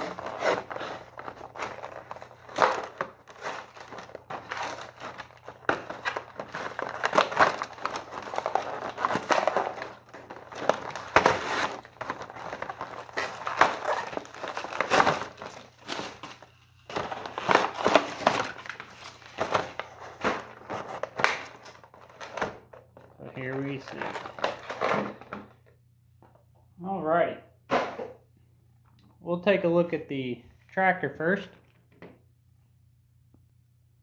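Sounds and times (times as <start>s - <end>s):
plastic packaging crinkling: 0.0s - 25.3s.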